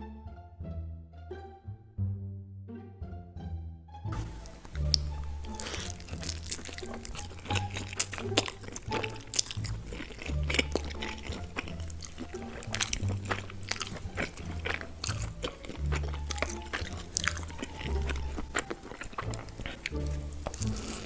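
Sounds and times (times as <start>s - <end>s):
background music with bass line: 0.0s - 21.0s
slurping and chewing noodles: 4.2s - 21.0s.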